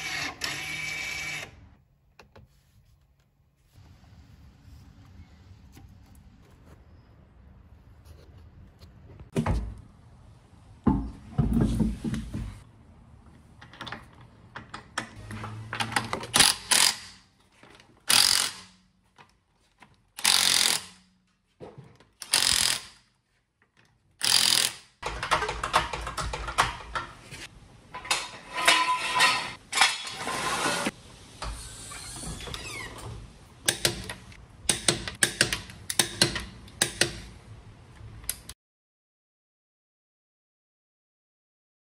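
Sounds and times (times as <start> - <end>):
cordless impact wrench bursts: 16.4 - 17.2, 18.1 - 18.7, 20.2 - 21.0, 22.2 - 23.0, 24.2 - 24.9.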